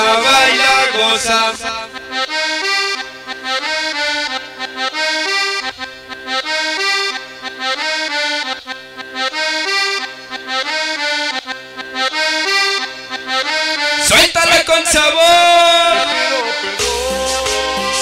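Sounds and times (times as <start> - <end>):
latin dance music with accordion: 0.0 - 18.0.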